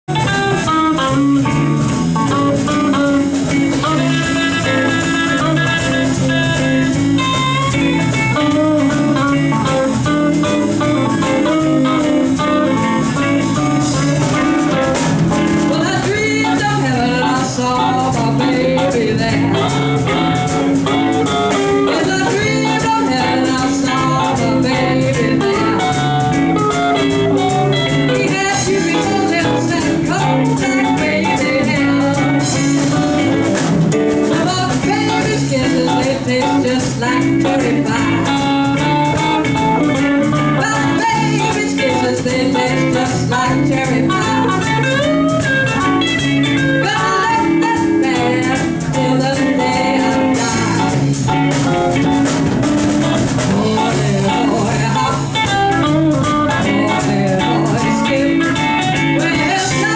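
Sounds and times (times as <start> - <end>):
live rock band playing: 0.0 - 59.9
drum kit steady beat: 0.1 - 59.9
woman singing lead: 0.2 - 59.9.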